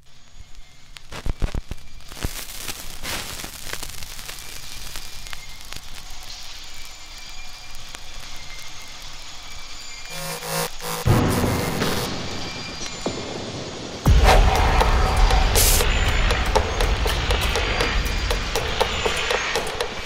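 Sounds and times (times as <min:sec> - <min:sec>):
crackling hiss: 0:00.0 - 0:20.0.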